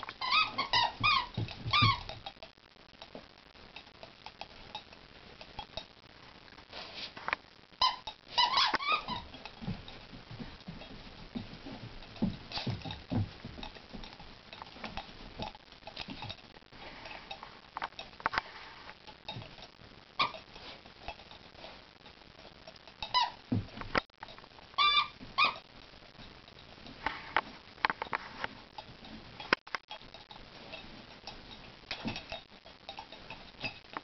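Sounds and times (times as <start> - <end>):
dogs scuffling and chewing toy: 0.1 - 2.4, 6.7 - 21.8, 22.4 - 34.0
toy squeaker squeaks: 0.2 - 2.2, 7.8 - 9.3, 23.0 - 23.4, 24.8 - 25.6.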